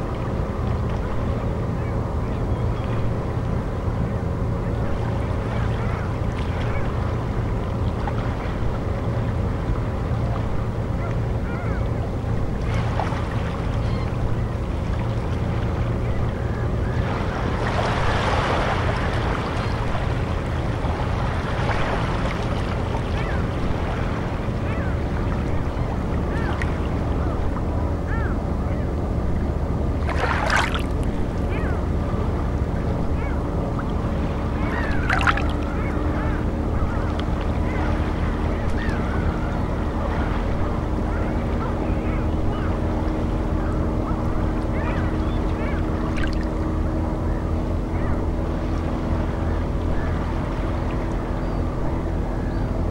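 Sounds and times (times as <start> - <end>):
deep rumble of water: 0.0 - 52.9
low drone tones: 0.0 - 52.9.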